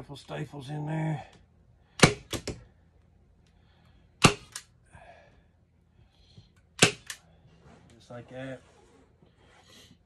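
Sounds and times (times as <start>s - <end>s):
staple gun snapping: 6.8s - 7.2s.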